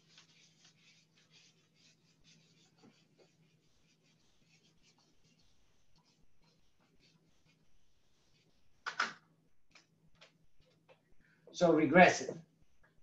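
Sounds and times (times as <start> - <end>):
eraser wiping whiteboard: 0.0 - 8.9.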